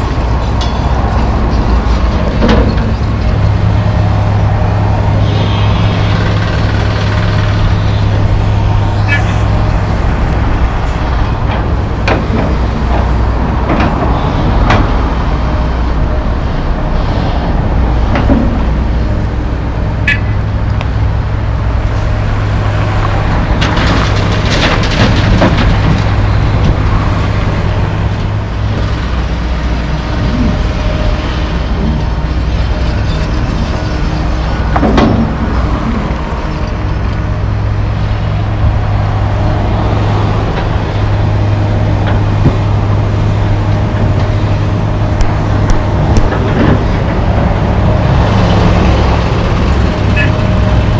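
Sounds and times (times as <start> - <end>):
heavy diesel engines running: 0.0 - 50.9
metal clanks and knocks: 0.3 - 3.9, 11.3 - 15.0, 32.8 - 37.2.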